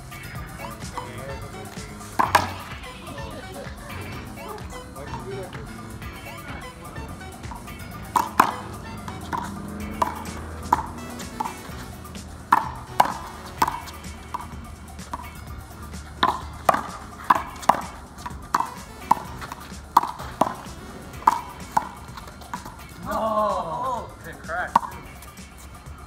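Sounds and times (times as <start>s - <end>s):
rubber ball smacking off wall: 2.1s - 2.8s.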